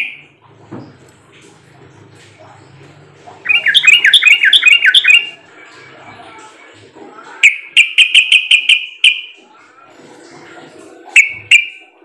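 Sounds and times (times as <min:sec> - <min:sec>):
bulbul singing: 0:03.4 - 0:05.5, 0:07.4 - 0:09.4.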